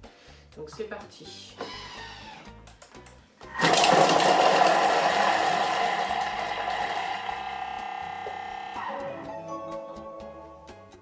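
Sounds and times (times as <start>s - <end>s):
kitchen robot motor whine: 3.6s - 9.0s.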